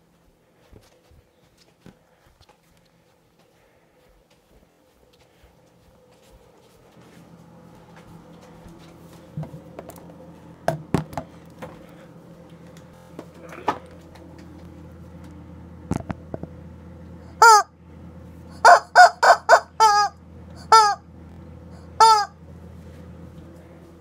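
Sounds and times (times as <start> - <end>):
rubber chicken toy squawking: 17.4 - 17.7, 18.5 - 21.0, 21.9 - 22.4.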